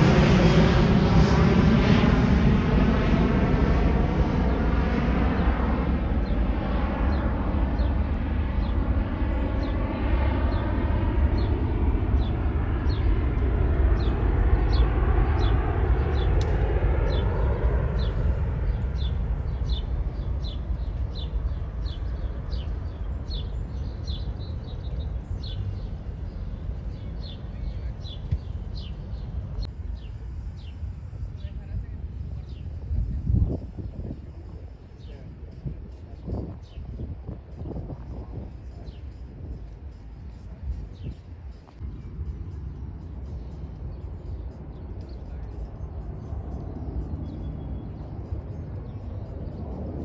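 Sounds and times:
jet airliner engine roar: 0:00.0 - 0:50.0
small bird chirping: 0:13.8 - 0:30.9.

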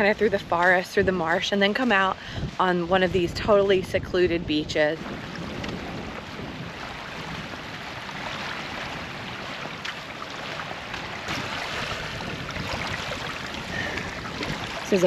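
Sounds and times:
small waves lapping on shore: 0:00.0 - 0:15.0
wind: 0:00.0 - 0:15.0.

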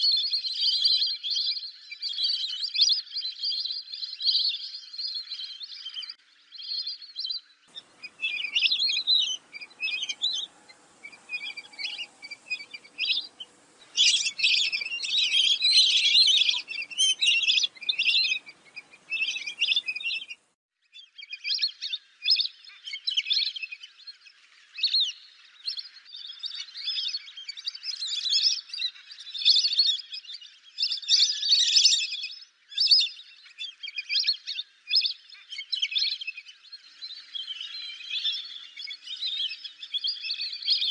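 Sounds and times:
ducks whistling: 0:07.7 - 0:20.4.

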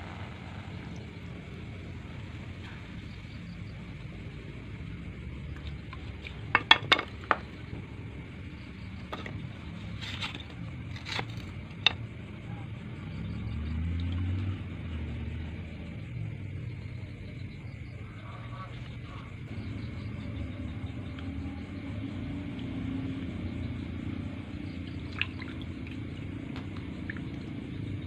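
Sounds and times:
steady low rumble: 0:00.0 - 0:06.5
water splashes: 0:24.8 - 0:27.6.

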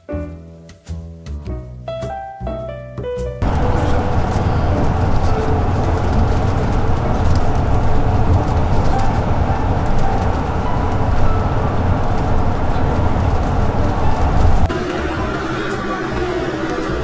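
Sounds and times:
bus engine rumble: 0:03.4 - 0:17.0
tyres on the road: 0:03.4 - 0:17.0.

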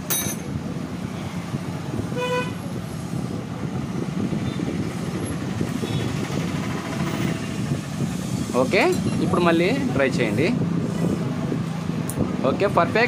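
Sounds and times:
road traffic noise: 0:00.0 - 0:13.0
vehicle horn toot: 0:02.2 - 0:02.6.

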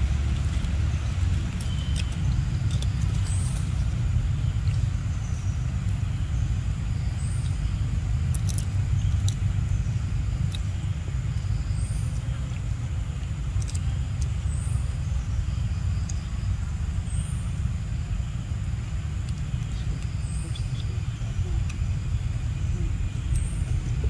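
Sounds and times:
faint high chirps: 0:00.0 - 0:12.7
low outdoor rumble: 0:00.0 - 0:24.0
sharp ticks: 0:08.2 - 0:09.5, 0:13.5 - 0:14.4.

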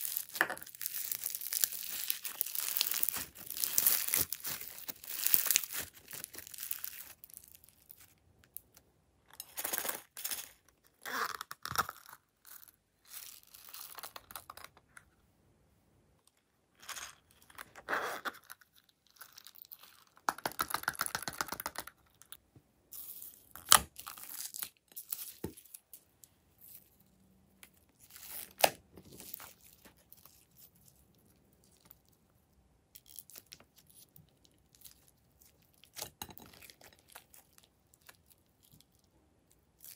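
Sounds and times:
slime crackling and squishing: 0:00.0 - 0:08.2.

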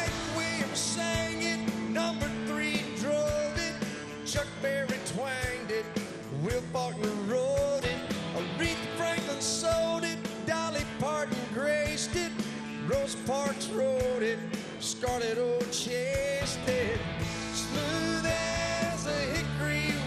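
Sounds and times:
drum hits: 0:00.0 - 0:14.2
country-rock band playing: 0:00.0 - 0:20.0.

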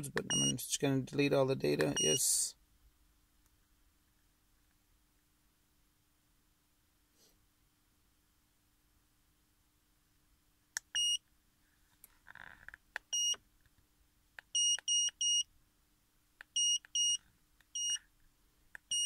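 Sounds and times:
high-pitched key beeps: 0:00.2 - 0:00.6, 0:01.9 - 0:02.2, 0:17.8 - 0:18.0.

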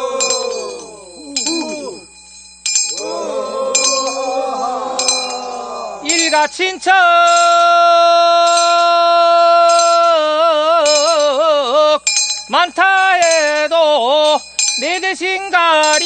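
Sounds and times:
voices singing together: 0:00.0 - 0:02.1, 0:02.9 - 0:07.2
handbell ringing: 0:00.0 - 0:16.0.

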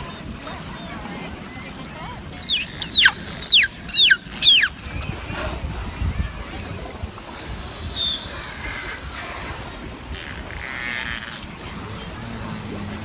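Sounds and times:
water: 0:00.0 - 0:13.0
wind rumble on microphone: 0:00.0 - 0:13.0
beluga whale chirps and whistle: 0:02.4 - 0:05.4, 0:06.2 - 0:09.1.

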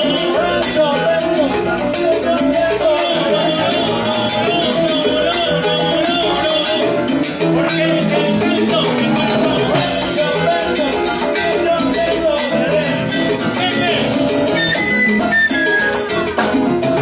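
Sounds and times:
person singing: 0:00.0 - 0:16.2
bass guitar: 0:00.0 - 0:17.0
congas and timbales: 0:00.0 - 0:17.0
salsa band playing: 0:00.0 - 0:17.0.

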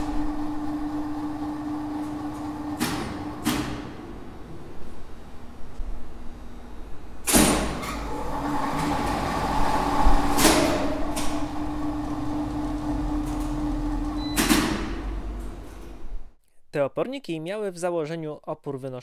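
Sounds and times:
elevator motor humming: 0:00.0 - 0:16.4
elevator machine clack: 0:07.3 - 0:16.1.

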